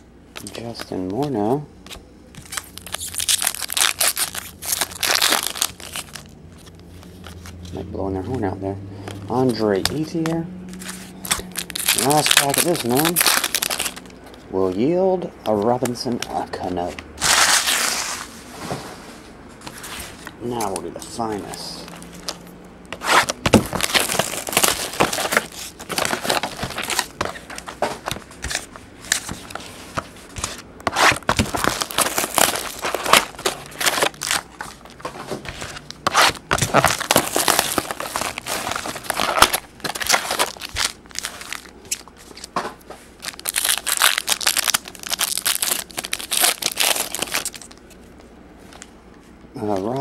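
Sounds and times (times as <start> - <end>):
card packs being handled: 0.3 - 18.3, 19.6 - 49.0, 49.6 - 50.0
plastic wrap crinkling and tearing: 2.4 - 7.6, 10.8 - 14.3, 20.2 - 42.6, 43.2 - 48.0.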